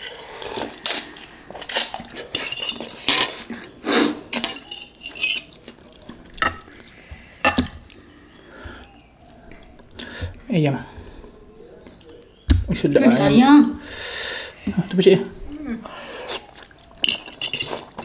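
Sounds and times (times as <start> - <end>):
fork clinking against dishes: 4.3 - 5.6, 17.0 - 18.0.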